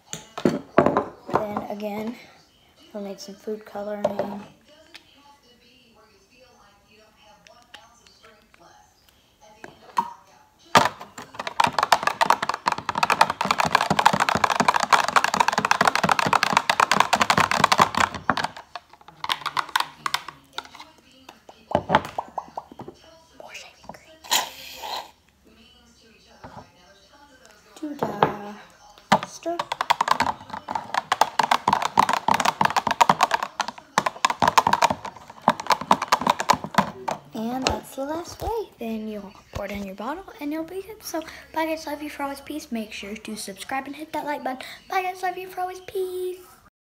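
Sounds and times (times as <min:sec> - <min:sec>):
whisk beating in glass cup: 0:11.2 - 0:18.7, 0:29.2 - 0:37.8.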